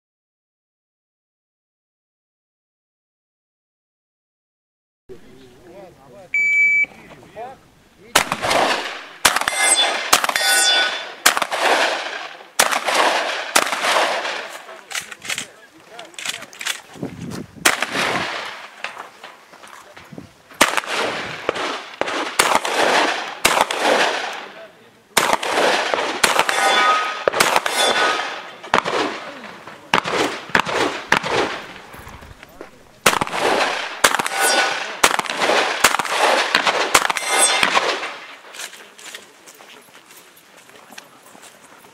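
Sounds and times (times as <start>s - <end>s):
shotgun shots echoing: 8.1s - 15.6s, 17.6s - 19.0s, 20.6s - 38.4s
steel target ringing: 9.3s - 11.2s, 26.3s - 28.6s, 34.1s - 34.9s, 37.1s - 37.8s.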